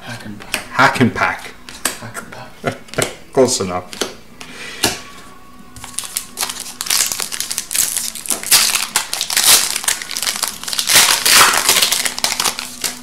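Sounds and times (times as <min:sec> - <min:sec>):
wrapper crinkling: 0:05.8 - 0:13.0.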